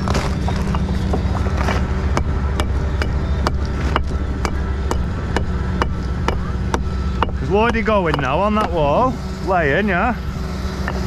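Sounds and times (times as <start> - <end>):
machinery hum: 0.0 - 11.0
hammer striking stone: 2.2 - 8.9.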